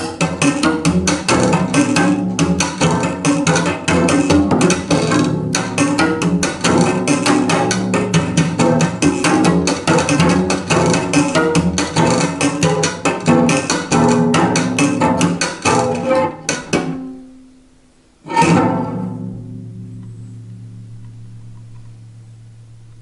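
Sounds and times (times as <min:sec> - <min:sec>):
cello strings struck and plucked: 0:00.0 - 0:23.0.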